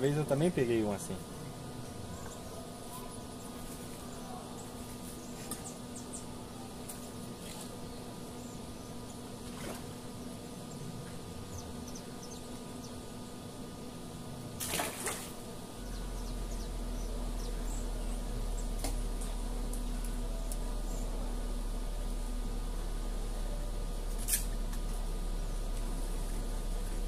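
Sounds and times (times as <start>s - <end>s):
faint steady hum: 0.0s - 27.0s
low steady rumble: 0.0s - 27.0s.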